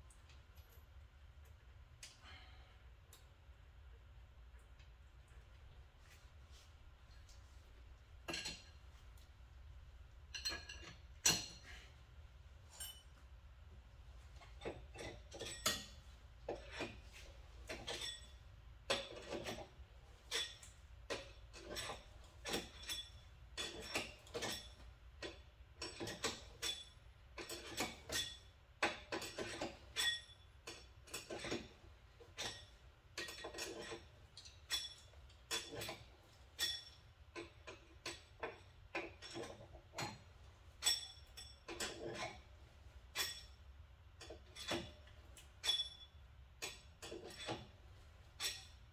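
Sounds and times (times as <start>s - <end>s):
metal tools clinking: 10.3s - 11.8s, 12.7s - 13.3s, 14.6s - 19.6s, 29.1s - 31.7s, 32.3s - 42.4s, 43.1s - 43.6s, 44.2s - 48.9s.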